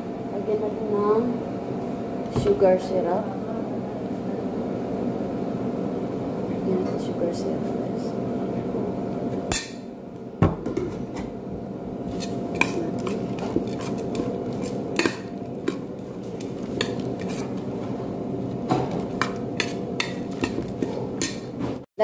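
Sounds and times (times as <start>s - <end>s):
steady hum: 0.0s - 21.9s
metal spoon scraping a metal platter: 12.1s - 17.7s.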